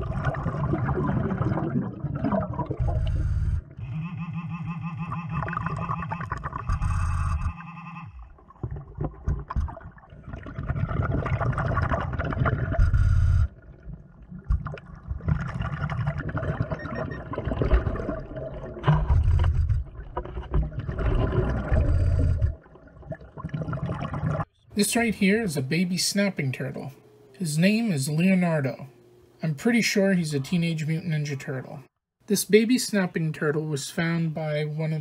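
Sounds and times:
underwater exhaled bubbles: 0.0 - 3.8, 8.3 - 24.5.

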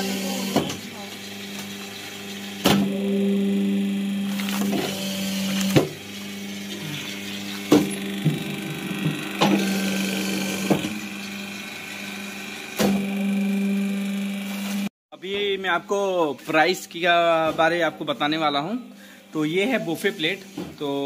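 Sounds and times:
press machine humming: 0.0 - 14.9.

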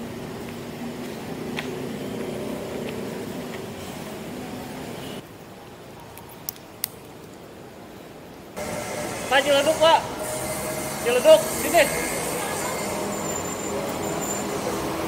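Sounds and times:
road traffic and engine hum: 0.0 - 15.0.

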